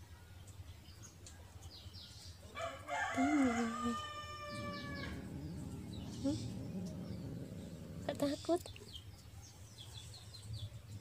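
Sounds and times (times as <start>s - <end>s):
rooster crowing: 2.6s - 5.4s.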